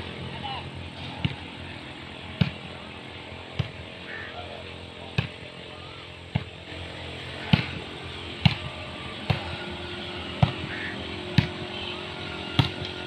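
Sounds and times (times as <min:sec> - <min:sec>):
volleyball being struck by hand: 0:02.3 - 0:02.8, 0:03.5 - 0:03.8, 0:05.1 - 0:05.5, 0:06.3 - 0:06.6, 0:07.4 - 0:09.6, 0:10.3 - 0:11.7, 0:12.5 - 0:13.0.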